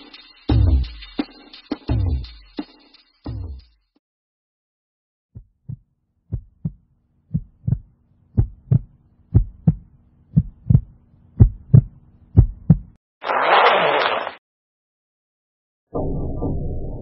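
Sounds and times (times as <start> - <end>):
heartbeat thumps: 5.4 - 13.0.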